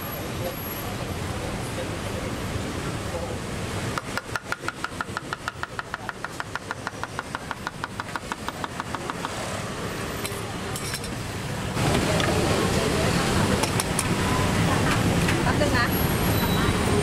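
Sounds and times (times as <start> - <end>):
street noise: 0.0 - 17.0
knife chopping on wooden board: 4.0 - 9.4.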